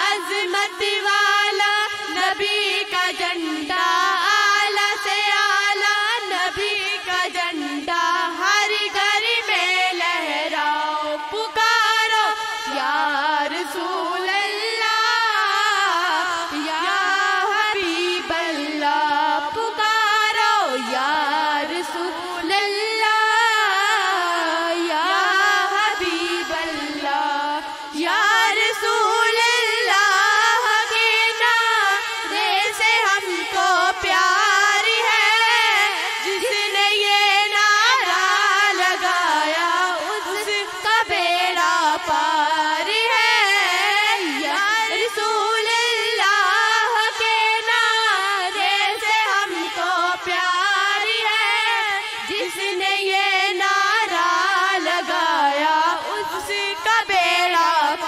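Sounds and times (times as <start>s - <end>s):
high voice singing devotional song: 0.0s - 58.0s.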